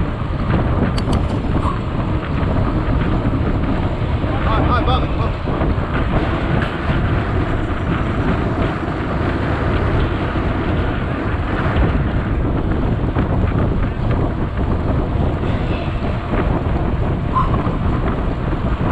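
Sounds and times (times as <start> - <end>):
wind buffeting microphone: 0.0 - 18.9.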